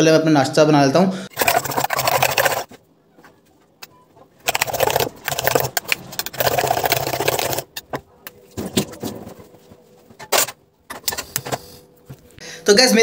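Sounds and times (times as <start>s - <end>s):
spoon beating eggs in steel bowl: 1.4s - 2.7s, 4.4s - 7.8s.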